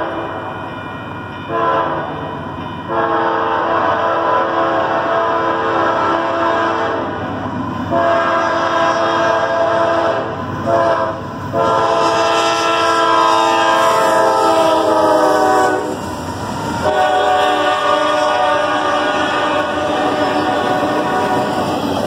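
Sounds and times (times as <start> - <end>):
train rumbling past: 0.0 - 22.0
locomotive air horn blasts: 1.5 - 2.1, 2.9 - 7.2, 7.9 - 16.0, 16.8 - 21.7.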